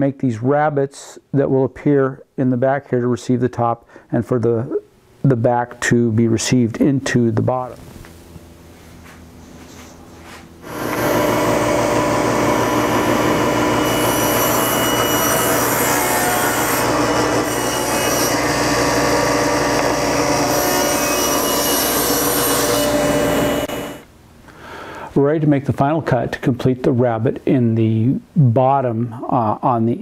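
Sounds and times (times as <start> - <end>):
table saw motor hum: 9.4 - 24.0
saw blade cutting wood: 10.6 - 24.0.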